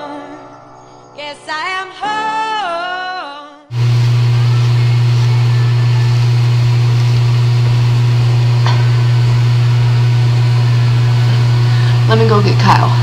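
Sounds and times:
small motor humming: 0:03.7 - 0:12.9.

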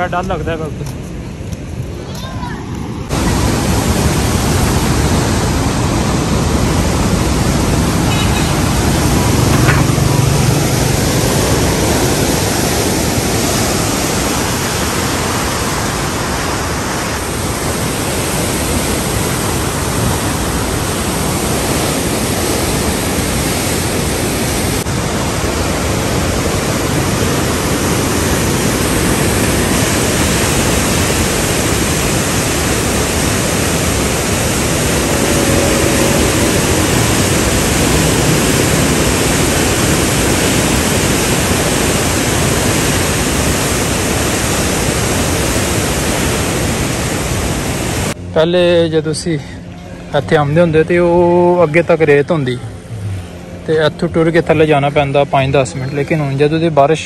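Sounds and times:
floodwater rushing through gates: 0:03.1 - 0:48.2.

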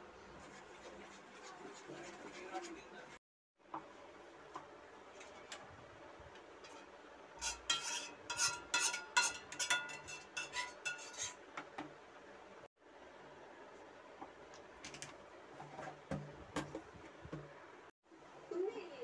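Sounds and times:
metal clinking against a cooking pot: 0:07.6 - 0:11.2.

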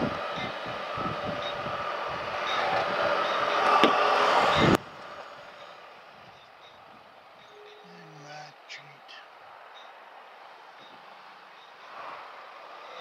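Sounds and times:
motorcycle wind and road noise: 0:00.0 - 0:07.2
wind buffeting microphone: 0:00.0 - 0:07.8.

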